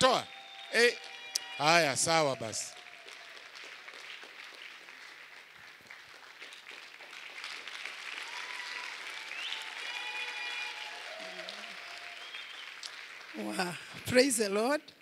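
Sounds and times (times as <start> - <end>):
congregation applauding: 0.0 - 14.6.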